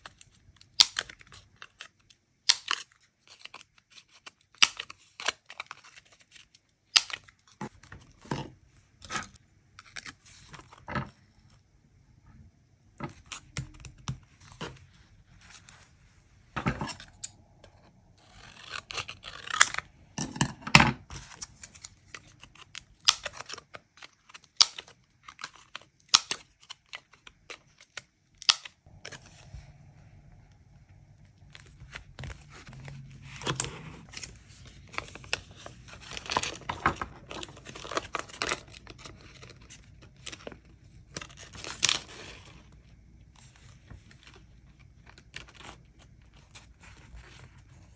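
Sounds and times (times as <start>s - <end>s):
paper rustling: 31.2s - 42.7s.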